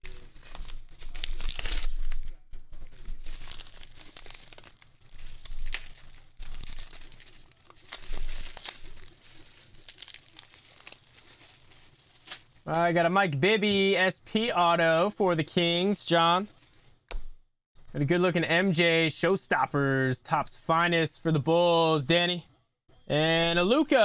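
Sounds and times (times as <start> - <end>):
paper envelope tearing: 0.0 - 12.6
plastic bag crinkling: 0.0 - 12.7.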